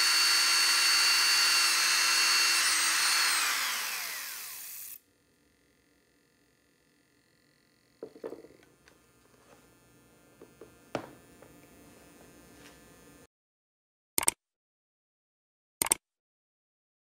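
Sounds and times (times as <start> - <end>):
electrical hum and buzz: 5.0 - 13.3
drill knocking on wooden bench: 8.0 - 8.7, 10.4 - 11.6.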